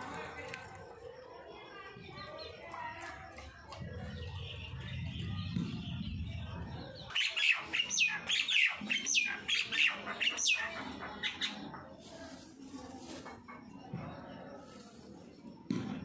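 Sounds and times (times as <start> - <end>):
low rumble: 3.8 - 7.0
birds whistling downward calls: 4.2 - 11.6.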